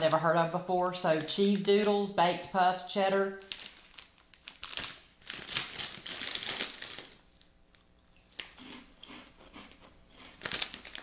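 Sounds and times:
snack bag rustling: 0:03.4 - 0:11.0
person crunching and chewing: 0:07.7 - 0:11.0.

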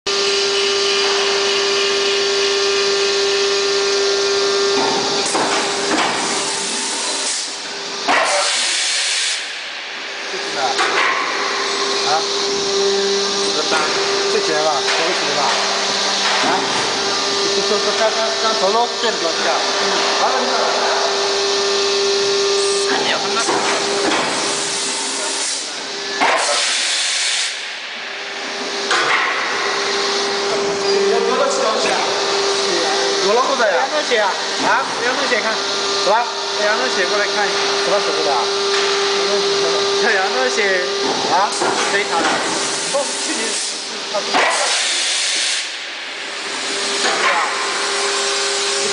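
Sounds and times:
steady hum: 0:00.1 - 0:45.0
machine whine with hiss: 0:00.1 - 0:48.9
moulding machine hissing: 0:04.6 - 0:09.5, 0:20.3 - 0:27.6, 0:41.4 - 0:48.9
loud hiss: 0:08.2 - 0:09.5, 0:26.4 - 0:27.6, 0:44.5 - 0:45.8.

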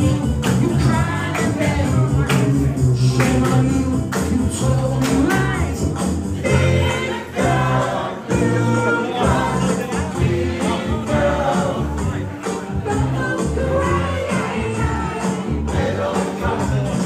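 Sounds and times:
amplified music with beat: 0:00.0 - 0:17.0
male vocal group singing: 0:00.0 - 0:17.0
hand claps: 0:00.3 - 0:05.7.

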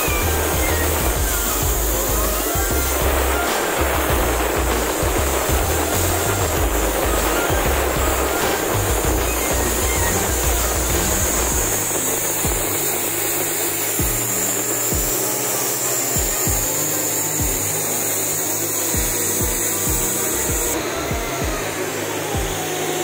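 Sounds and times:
machinery hum: 0:00.0 - 0:23.0
strong hiss: 0:00.0 - 0:23.0
soft low thumps: 0:14.0 - 0:14.3, 0:19.0 - 0:21.7.

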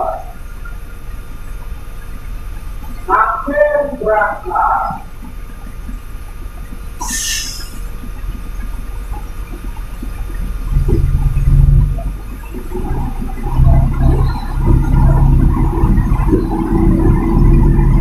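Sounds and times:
road rumble: 0:00.0 - 0:18.0
truck diesel engine drone: 0:00.0 - 0:18.0
brief hiss: 0:07.0 - 0:07.9.

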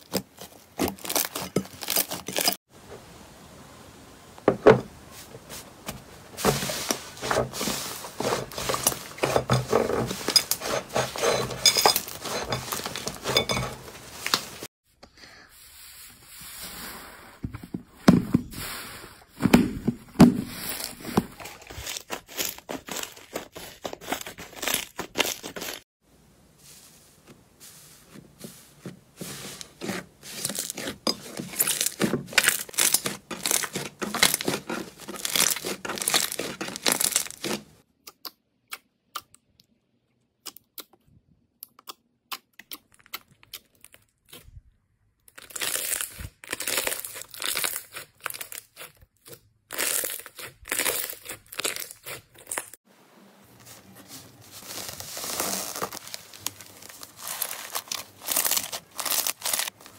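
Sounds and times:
paper labels crinkling: 0:28.4 - 0:37.7, 0:53.6 - 0:59.9.

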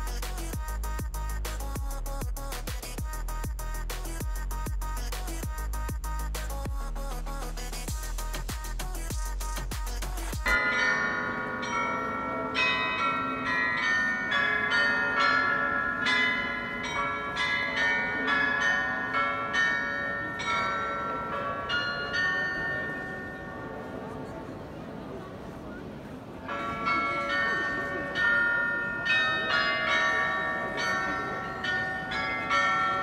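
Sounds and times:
glockenspiel bells playing a tune: 0:00.0 - 0:06.6, 0:07.5 - 0:23.9, 0:26.5 - 0:33.0
electronic music with a beat: 0:00.0 - 0:10.6.

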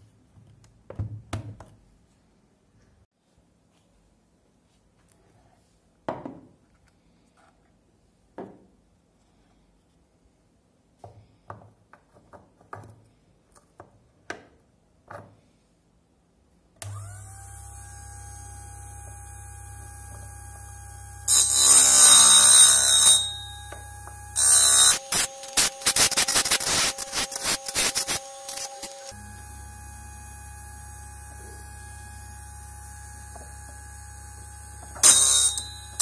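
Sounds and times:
motor humming: 0:16.8 - 0:22.8, 0:23.5 - 0:36.0
drill bit grinding: 0:16.8 - 0:36.0.

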